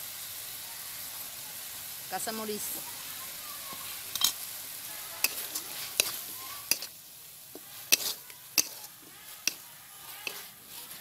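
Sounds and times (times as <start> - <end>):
paste sizzling: 1.0 - 11.0
metal spatula scraping pan: 5.0 - 11.0.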